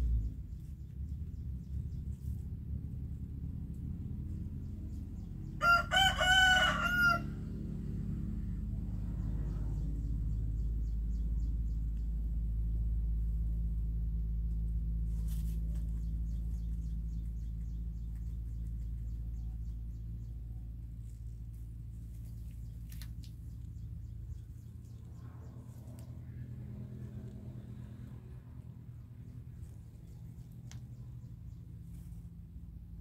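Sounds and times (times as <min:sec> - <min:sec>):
low rumble: 0:00.0 - 0:05.6, 0:07.2 - 0:33.0.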